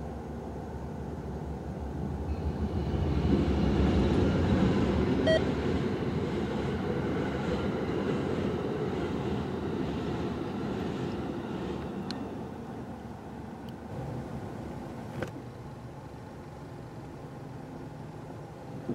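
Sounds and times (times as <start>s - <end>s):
train wheels rumbling on rail: 1.0s - 15.4s.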